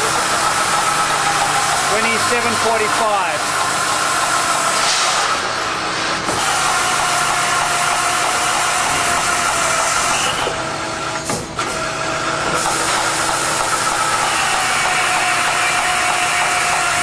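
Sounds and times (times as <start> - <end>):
drill cutting through steel: 0.0 - 5.5, 6.3 - 10.6, 12.6 - 17.0.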